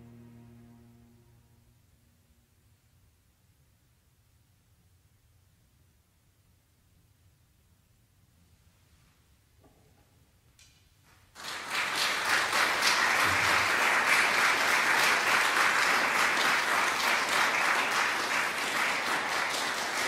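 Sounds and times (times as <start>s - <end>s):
audience applause: 11.4s - 20.0s.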